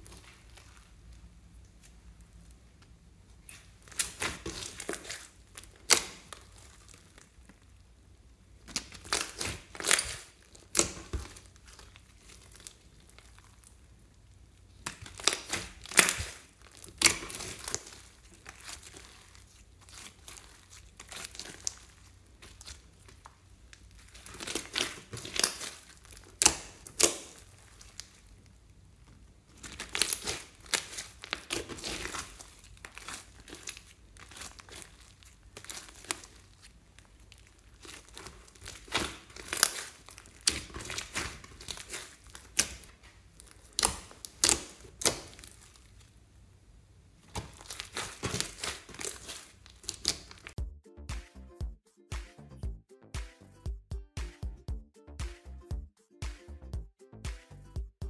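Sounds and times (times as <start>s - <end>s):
slime sticky crackles and pops: 3.4s - 7.8s, 8.6s - 28.6s, 29.5s - 46.2s, 47.3s - 50.6s.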